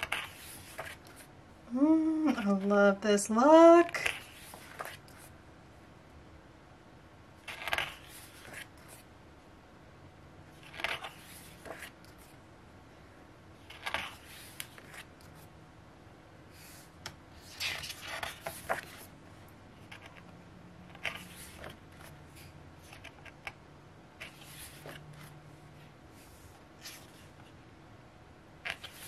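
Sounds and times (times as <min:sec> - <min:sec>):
pages turning: 0:00.0 - 0:01.3, 0:04.0 - 0:05.3, 0:07.4 - 0:09.1, 0:10.5 - 0:12.4, 0:13.6 - 0:15.5, 0:17.4 - 0:19.1, 0:20.9 - 0:23.6, 0:24.2 - 0:25.4, 0:26.2 - 0:27.5, 0:28.6 - 0:29.0.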